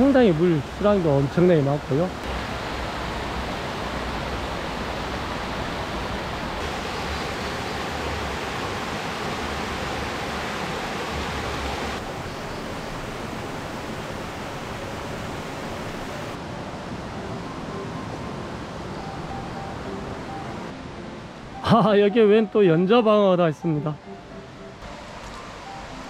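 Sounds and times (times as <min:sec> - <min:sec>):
stream rushing over boulders: 0:00.0 - 0:17.6.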